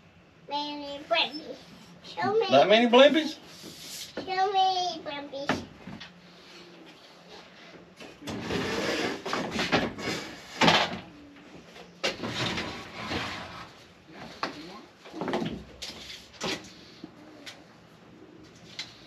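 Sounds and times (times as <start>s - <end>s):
wood scraping on saw stand: 8.3s - 10.6s, 12.1s - 13.9s.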